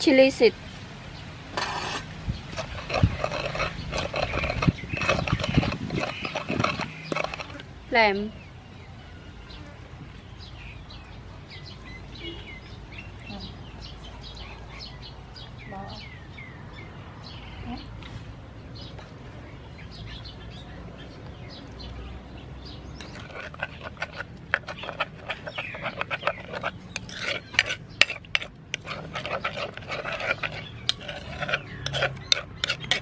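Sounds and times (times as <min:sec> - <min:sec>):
metal spoon stirring sauce: 0:01.7 - 0:07.6, 0:23.0 - 0:33.0
spoon clicking against mortar: 0:23.0 - 0:33.0.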